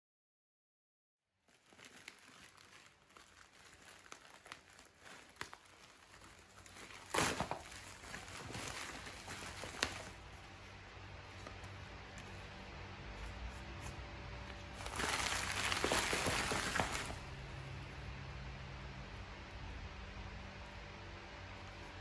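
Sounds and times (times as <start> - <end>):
plastic bag crinkling: 1.4 - 10.3, 14.7 - 17.3.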